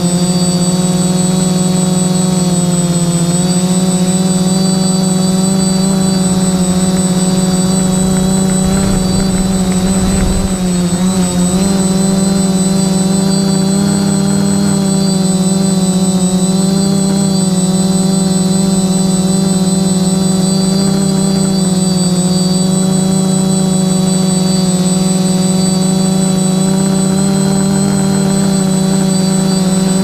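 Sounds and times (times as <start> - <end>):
drone propellers whining: 0.0 - 30.0
low rumble: 6.4 - 12.8.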